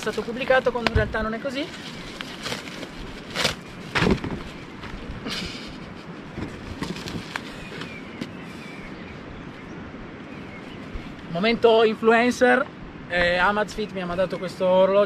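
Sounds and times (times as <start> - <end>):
plastic packaging rustling: 0.0 - 5.0, 6.6 - 8.0.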